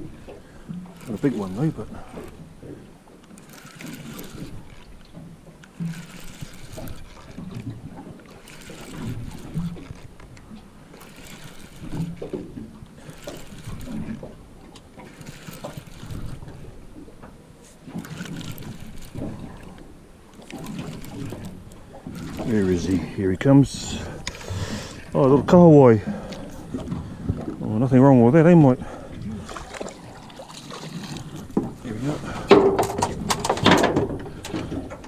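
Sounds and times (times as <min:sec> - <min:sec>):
water slapping boat hull: 0:00.0 - 0:35.0.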